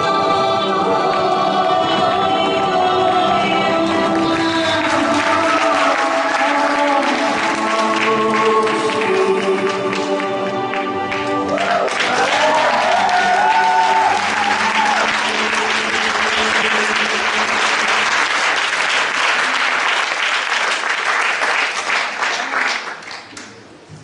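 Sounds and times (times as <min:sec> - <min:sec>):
performance music: 0:00.0 - 0:24.0
audience applauding: 0:03.9 - 0:23.6.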